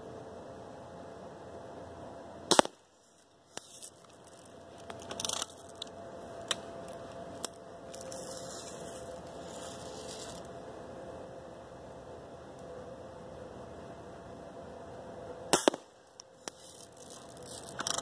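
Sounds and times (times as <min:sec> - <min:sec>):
bb gun crack: 0:02.5 - 0:02.8, 0:15.5 - 0:16.6.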